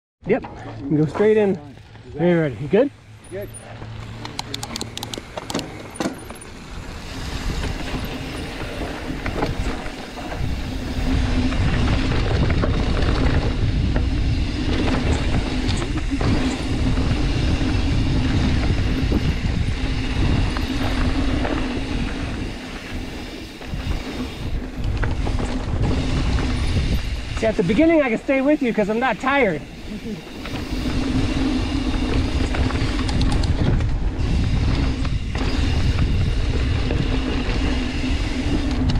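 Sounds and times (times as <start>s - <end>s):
bike tyres rattling over dirt: 0.9s - 38.9s
sharp clicks: 4.0s - 5.7s, 32.8s - 33.6s
wind on microphone: 6.6s - 28.0s, 29.6s - 38.9s.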